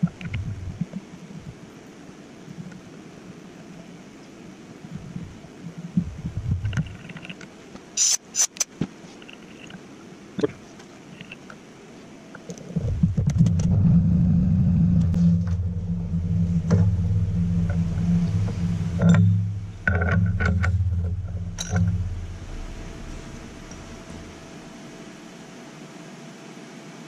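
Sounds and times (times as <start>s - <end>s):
low machine hum: 12.2s - 27.0s.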